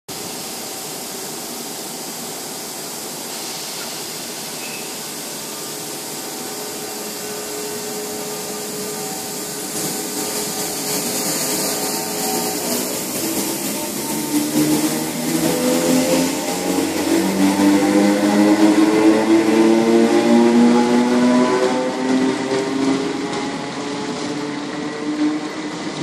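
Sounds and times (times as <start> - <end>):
electric train whine and rush: 0.1 - 26.0.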